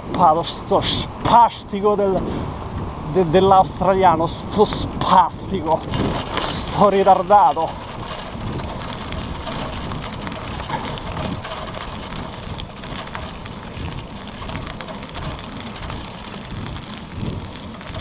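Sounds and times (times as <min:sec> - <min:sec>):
bicycle road and wind noise: 0:00.0 - 0:18.0
small crackles: 0:05.6 - 0:18.0.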